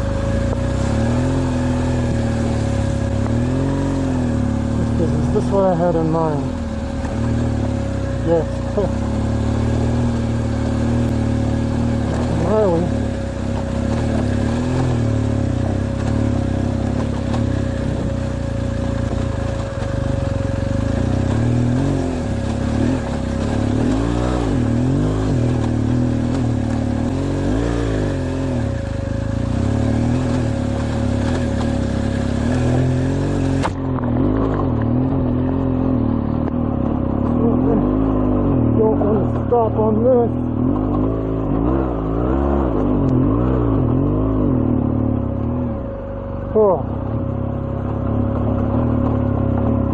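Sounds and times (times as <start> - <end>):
motorcycle engine revving: 0.0 - 49.9.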